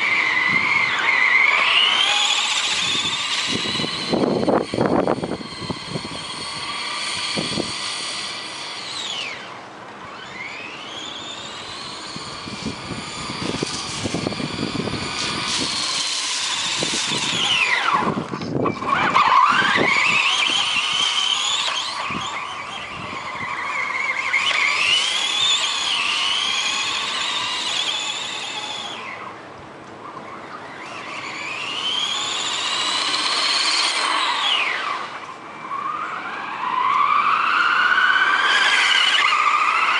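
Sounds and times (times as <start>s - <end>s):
electric toy car motor whining: 0.0s - 39.9s.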